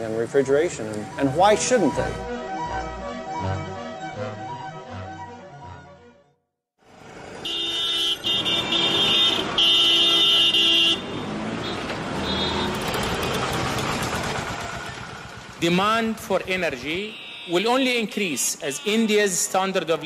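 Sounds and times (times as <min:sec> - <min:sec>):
street traffic engine noise: 0:06.8 - 0:20.0
vehicle horns honking: 0:07.4 - 0:12.9, 0:16.8 - 0:17.8, 0:18.4 - 0:19.4.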